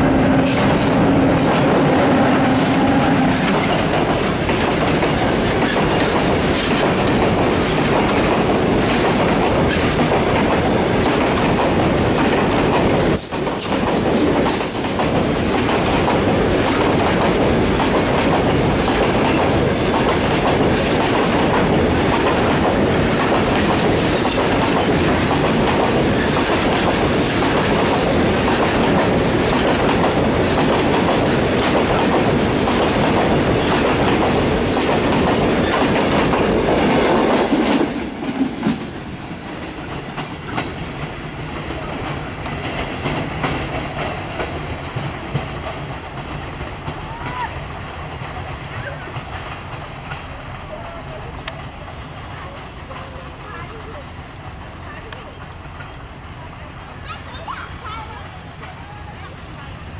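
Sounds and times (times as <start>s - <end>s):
train rumble: 0.0s - 59.9s
train wheels clattering over rail joints: 0.4s - 56.4s.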